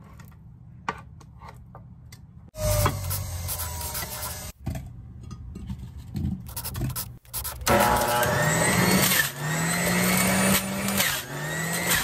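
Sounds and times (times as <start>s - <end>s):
juicer motor: 7.7s - 12.0s.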